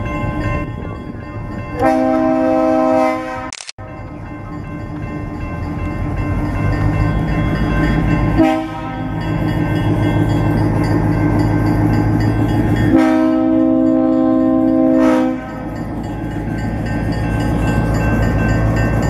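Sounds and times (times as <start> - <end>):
locomotive horn: 1.8 - 3.5, 8.3 - 9.2, 12.9 - 15.7.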